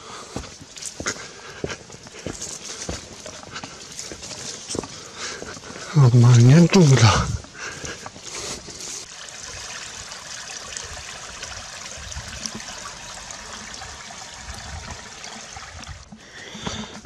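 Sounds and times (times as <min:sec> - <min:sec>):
footsteps on stony path: 0:00.0 - 0:09.1, 0:16.0 - 0:17.0
water trickling over rocks: 0:00.0 - 0:17.0.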